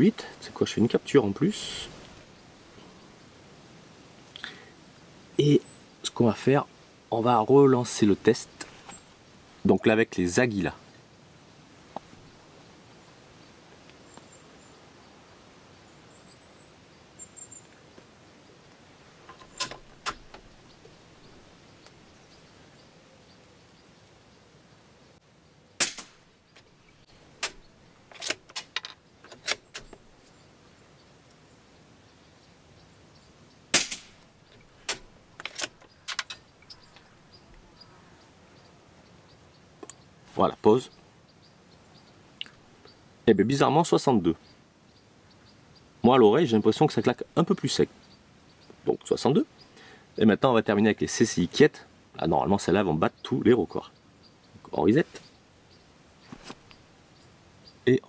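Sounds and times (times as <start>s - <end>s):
suppressed rifle shot: 25.8s - 26.3s, 33.7s - 34.2s.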